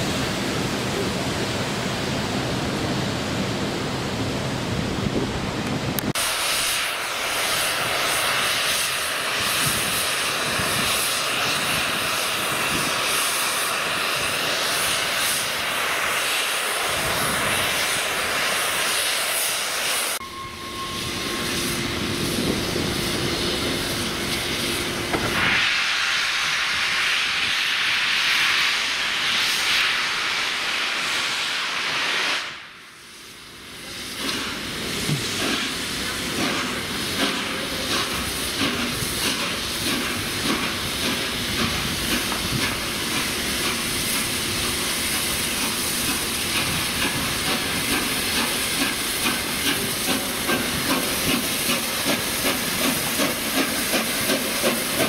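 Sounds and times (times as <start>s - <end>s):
steam locomotive hissing steam: 0.0s - 5.3s, 6.0s - 55.0s.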